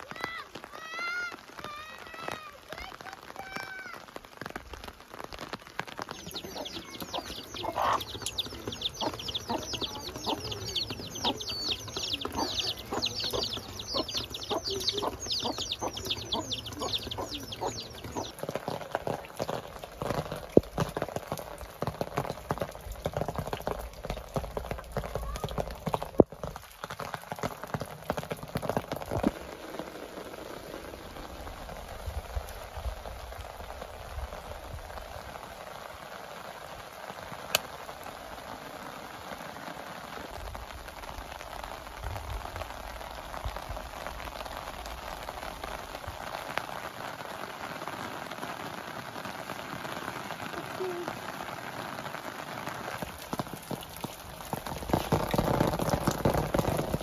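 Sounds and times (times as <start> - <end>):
chicks peeping: 6.1 - 18.4.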